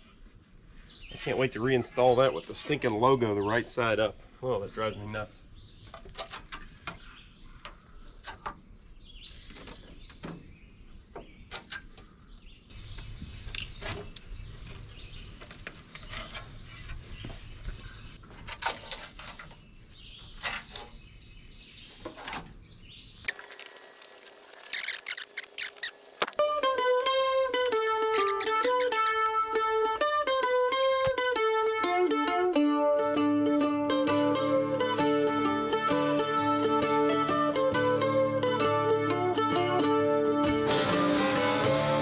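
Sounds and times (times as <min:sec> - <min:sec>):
birds chirping: 0:00.8 - 0:18.2
metal and glass clicks and scrapes: 0:23.3 - 0:26.2, 0:28.1 - 0:29.2.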